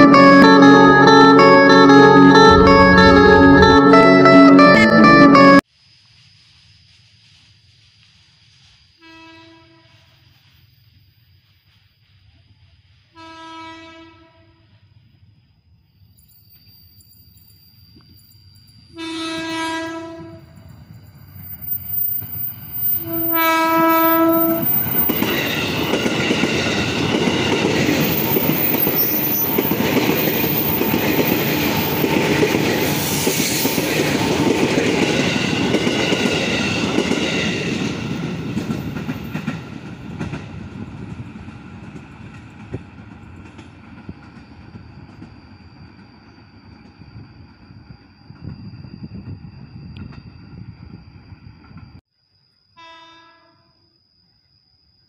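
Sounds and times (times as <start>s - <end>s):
train horn blasts: 0.0s - 5.6s, 9.0s - 10.0s, 13.2s - 14.7s, 19.0s - 20.6s, 23.0s - 24.8s, 52.8s - 53.7s
train wheels clattering on rails: 24.0s - 47.0s.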